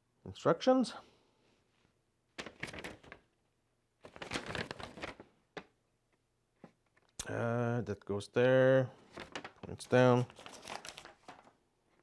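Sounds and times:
paper rustling: 2.4 - 3.3, 4.0 - 5.7, 9.0 - 11.6.

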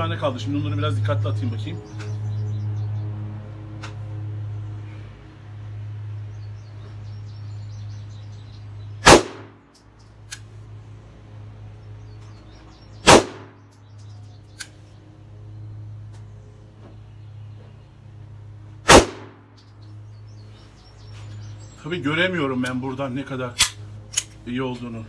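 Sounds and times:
steady low hum: 0.0 - 25.0
pistol shots: 9.0 - 9.6, 13.0 - 13.6, 18.8 - 19.5.

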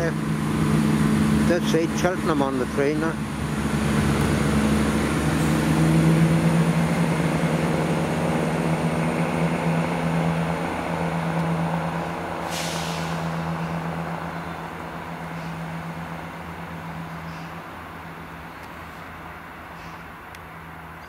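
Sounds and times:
diesel train engine drone: 0.0 - 21.0
air hiss: 12.4 - 13.9.

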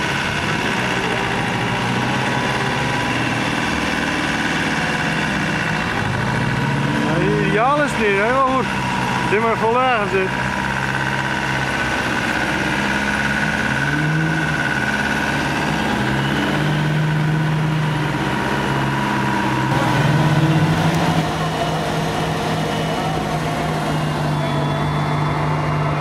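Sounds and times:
off-road vehicle engine revving: 0.0 - 26.0.

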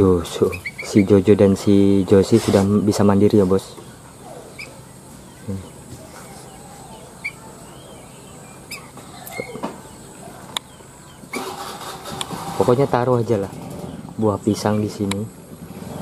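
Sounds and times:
faint outdoor background: 0.0 - 16.0
songbird chirping: 0.0 - 16.0
sharp clicks: 11.3 - 12.6, 15.0 - 15.3.

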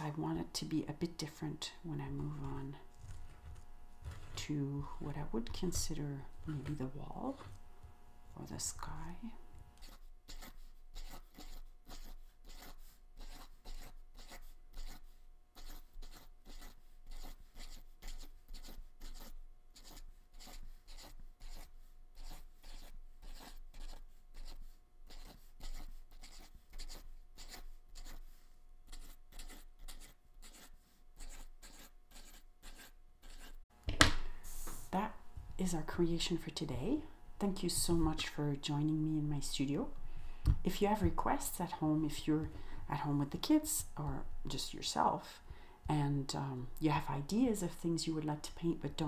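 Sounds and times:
paint marker dabbing on paper: 9.8 - 33.6.

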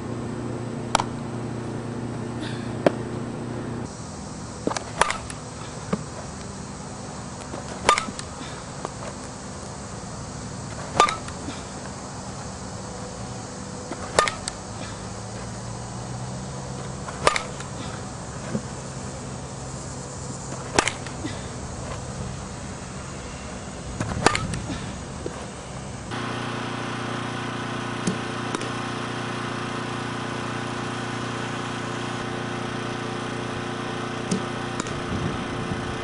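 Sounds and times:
softball bat pinging balls: 0.8 - 1.8, 2.4 - 3.9, 4.6 - 6.6, 7.2 - 9.8, 10.6 - 15.7, 16.4 - 19.7, 20.4 - 26.2, 28.0 - 28.8, 34.2 - 35.1.

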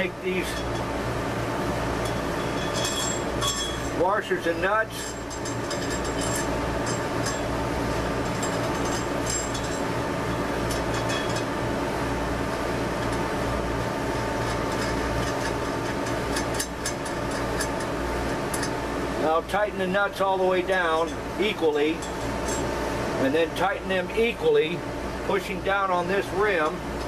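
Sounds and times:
steady mechanical hum: 0.0 - 27.0
metallic clinks of washers and nuts: 2.0 - 4.0, 5.0 - 7.5, 8.2 - 9.9, 10.7 - 11.5, 21.0 - 22.7.

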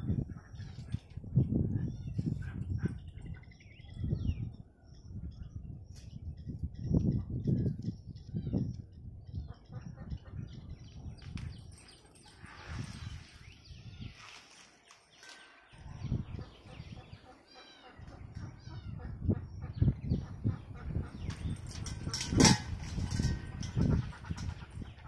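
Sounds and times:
high chirping animal calls: 15.2 - 21.6
low rumble on microphone: 18.0 - 25.0.

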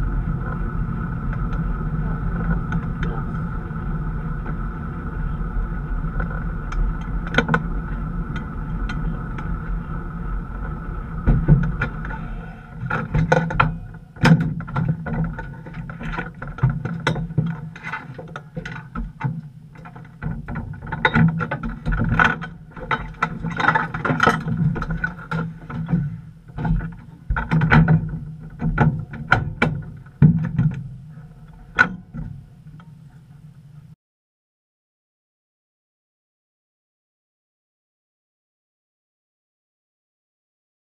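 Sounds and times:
race car engine running: 0.0 - 16.4
low hum: 0.0 - 34.0
knocks and rattles in cockpit: 5.6 - 12.2, 12.8 - 33.0.

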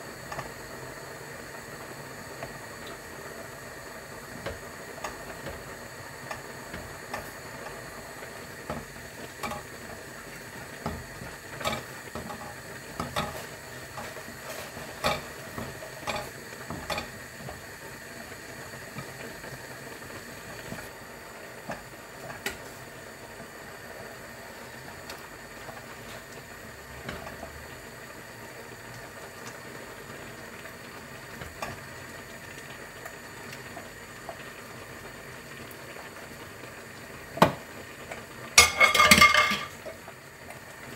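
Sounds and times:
water boiling in saucepan: 0.0 - 40.9
wooden spoons knocking pots: 10.7 - 17.2, 38.6 - 39.8.

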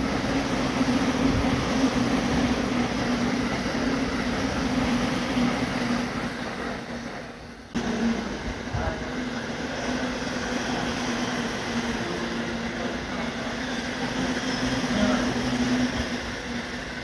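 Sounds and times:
electric train passing: 0.0 - 17.0.

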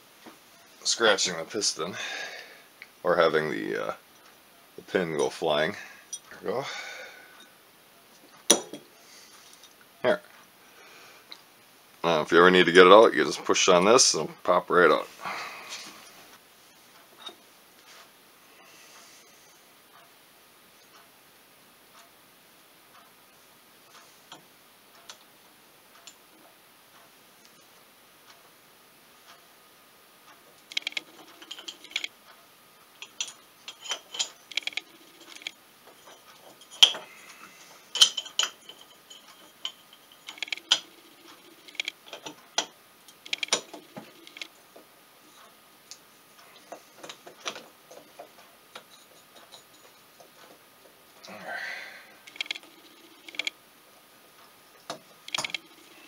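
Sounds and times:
metal engine parts clinking: 30.7 - 32.1, 33.0 - 37.1, 37.8 - 41.0, 41.6 - 44.4, 48.8 - 50.0.

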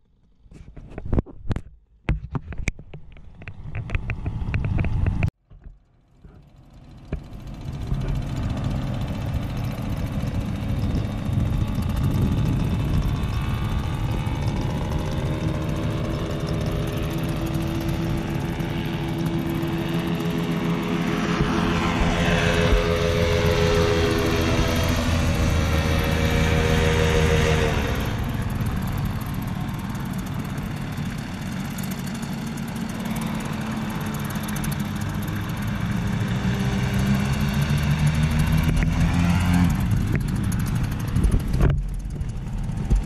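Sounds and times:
paramotor engines droning: 3.1 - 43.0
gusty noise: 7.5 - 17.4.

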